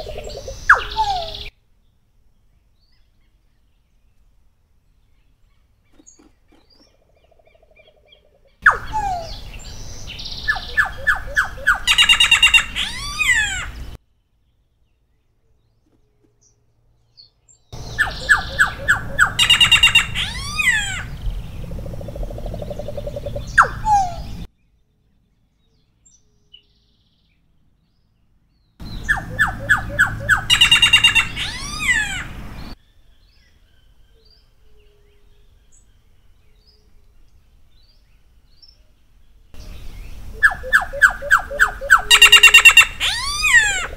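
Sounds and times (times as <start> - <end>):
bird singing whistles: 17.8 - 21.0, 22.9 - 24.4, 28.9 - 32.2, 39.9 - 43.8.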